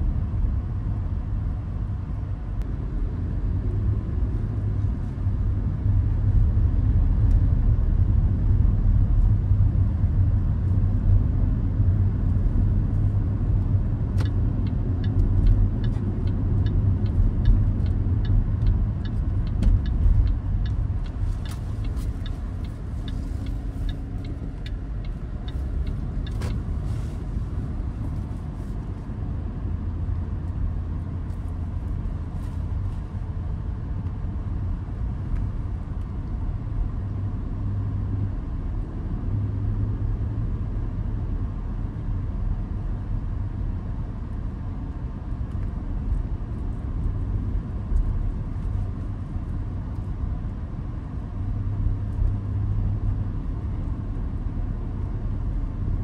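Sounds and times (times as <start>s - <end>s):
engine and road rumble: 0.0s - 56.0s
turn signal ticking: 13.4s - 28.2s.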